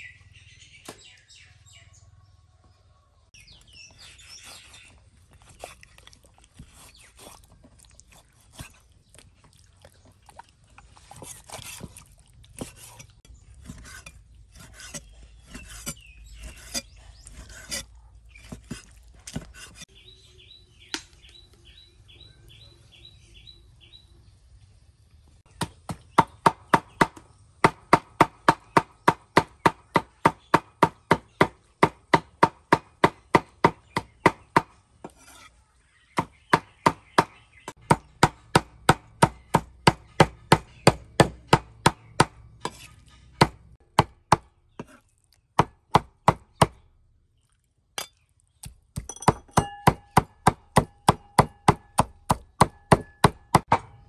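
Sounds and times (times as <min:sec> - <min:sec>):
cleaver chopping on wooden block: 0:25.5 - 0:35.2, 0:36.2 - 0:45.0, 0:45.6 - 0:46.8, 0:48.0 - 0:53.9.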